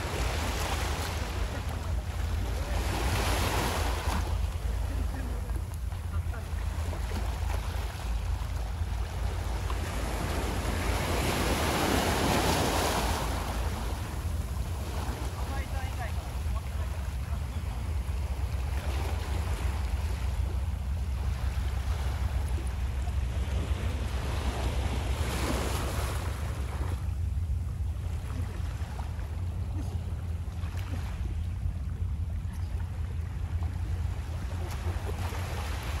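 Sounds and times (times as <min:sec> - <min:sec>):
small waves washing onto sand: 0:00.0 - 0:36.0.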